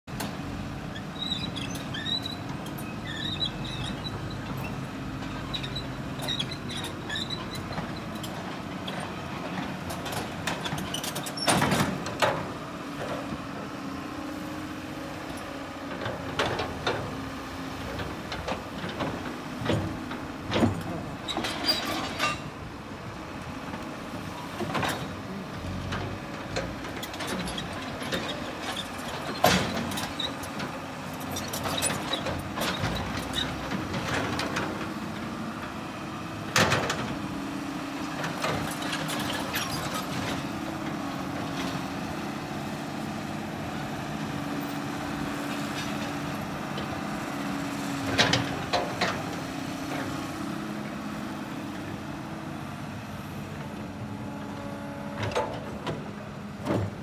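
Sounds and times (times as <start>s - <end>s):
diesel engines running: 0.1s - 57.0s
metallic clanks and squeals: 0.9s - 13.2s, 20.5s - 22.6s, 25.9s - 34.7s, 38.2s - 40.6s, 54.3s - 56.1s.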